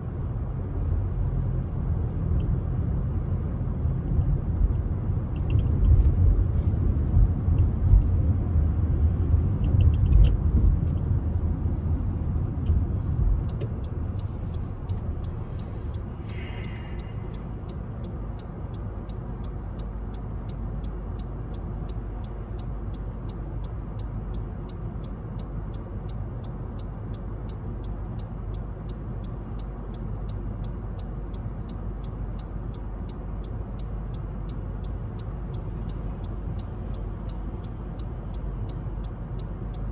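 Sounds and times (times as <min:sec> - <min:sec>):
car and traffic rumble: 0:00.0 - 0:39.9
quick regular ticking: 0:13.4 - 0:39.9.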